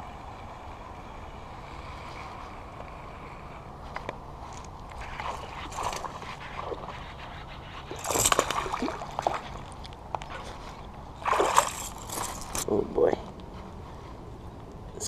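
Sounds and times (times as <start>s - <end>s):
fish splashing at water surface: 7.9s - 9.8s, 11.2s - 12.5s.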